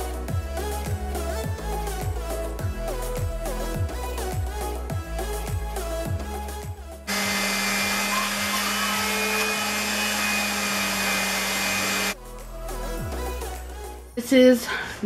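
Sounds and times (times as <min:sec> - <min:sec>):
background music: 0:00.0 - 0:15.0
electric sander on wood: 0:07.1 - 0:12.2.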